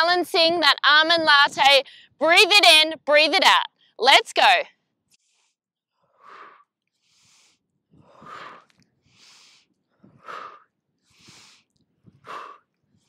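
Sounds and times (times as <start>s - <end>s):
woman breathing: 1.8s - 2.2s, 5.1s - 13.0s.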